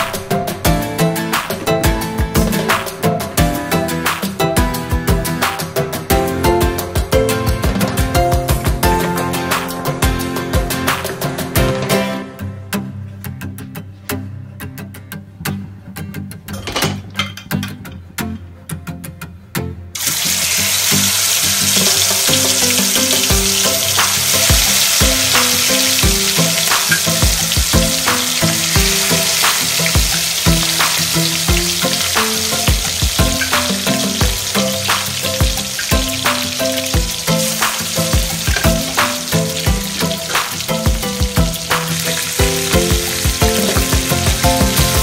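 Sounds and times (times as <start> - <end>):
chicken sizzling in hot oil: 20.0 - 45.0
oil crackles and pops: 20.0 - 45.0.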